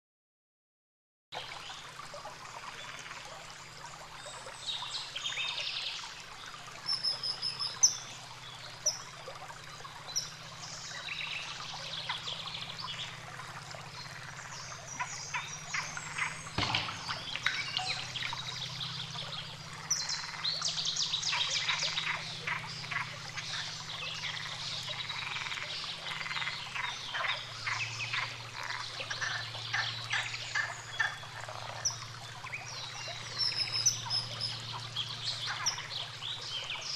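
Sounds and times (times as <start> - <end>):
sharp knock: 16.6 - 17.2.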